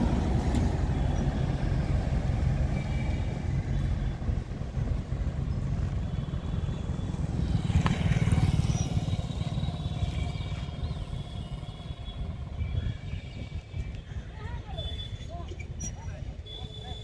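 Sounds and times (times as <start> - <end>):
motorcycle passing: 0.0 - 13.3
train rumbling along track: 0.0 - 17.0.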